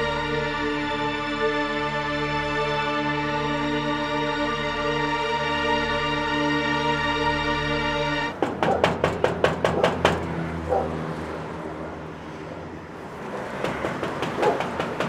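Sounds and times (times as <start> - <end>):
low traffic hum: 0.0 - 15.0
knocking on metal gate: 8.4 - 10.4, 13.6 - 15.0.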